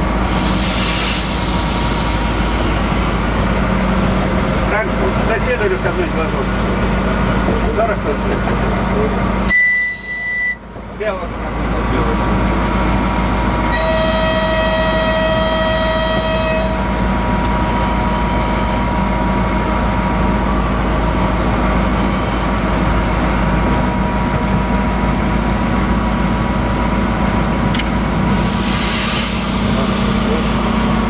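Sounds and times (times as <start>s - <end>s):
diesel engine rumble: 0.0s - 31.0s
air hisses: 0.6s - 1.6s, 28.6s - 29.7s
locomotive horn: 9.5s - 10.6s, 13.7s - 19.0s, 22.0s - 22.6s.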